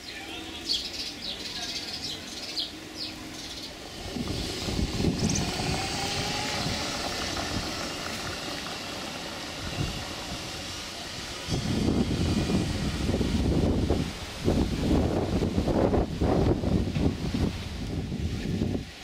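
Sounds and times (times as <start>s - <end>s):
golf cart driving past: 2.5s - 11.6s
wind gusting on microphone: 2.6s - 19.0s.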